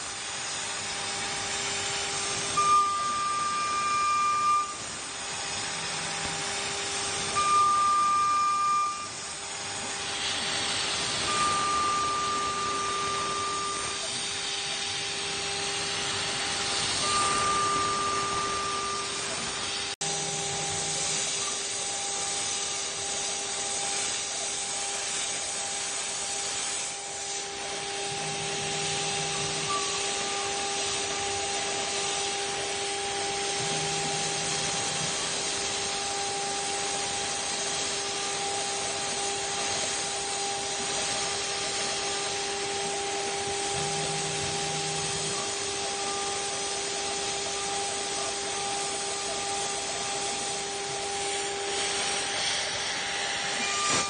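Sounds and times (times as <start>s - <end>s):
cutting and coolant spray hiss: 0.0s - 54.0s
milling spindle whine: 0.0s - 54.0s
short high tone: 17.0s - 19.4s.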